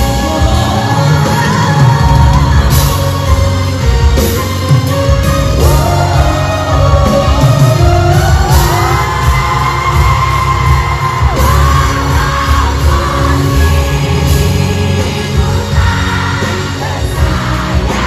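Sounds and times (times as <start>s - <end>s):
woman singing into microphone: 0.0s - 3.6s
live pop band: 0.0s - 18.0s.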